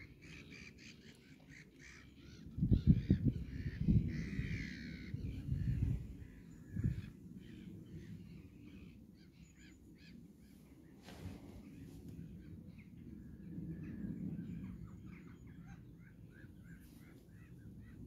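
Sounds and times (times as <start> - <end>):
birds calling: 0.0 - 18.0
wind buffeting on microphone: 2.4 - 9.1, 10.2 - 15.6.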